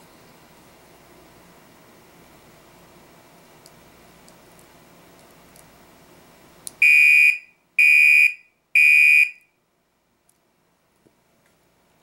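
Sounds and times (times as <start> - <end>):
fire alarm horn blasts: 6.8 - 9.5.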